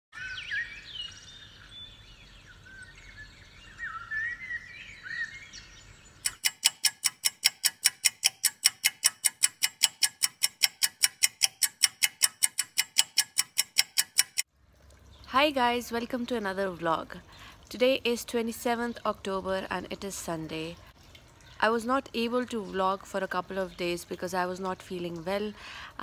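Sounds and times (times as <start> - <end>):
fast even ticking: 6.3 - 14.5.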